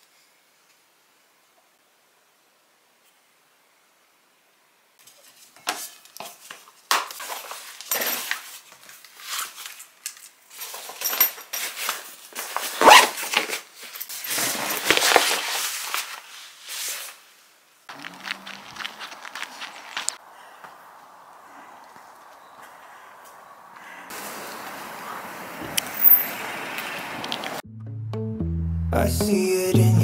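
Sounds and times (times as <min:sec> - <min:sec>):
outdoor background noise: 0:00.0 - 0:27.6
belongings rustling and clattering: 0:05.0 - 0:16.9.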